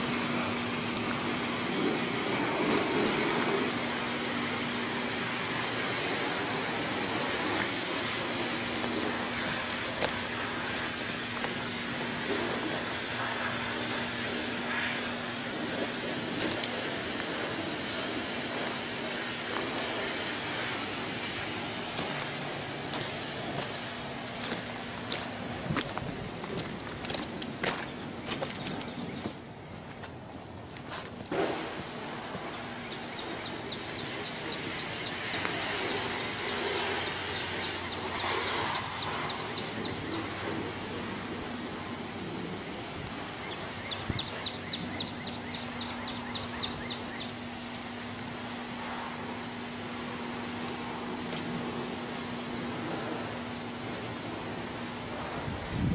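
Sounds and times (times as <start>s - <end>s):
outdoor background hiss: 0.0s - 55.9s.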